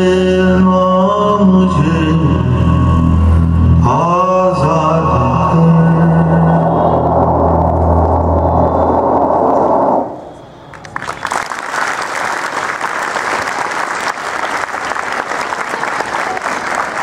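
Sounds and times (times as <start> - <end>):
audience applause: 10.7 - 17.0.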